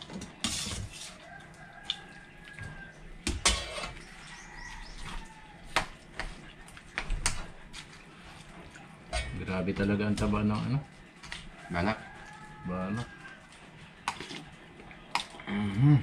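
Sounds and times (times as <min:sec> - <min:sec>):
cutlery clinking on plates: 0:09.1 - 0:09.9.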